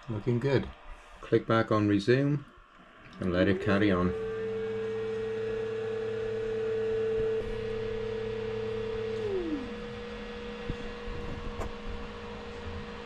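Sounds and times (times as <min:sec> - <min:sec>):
stepper motor whining: 0:03.2 - 0:13.0.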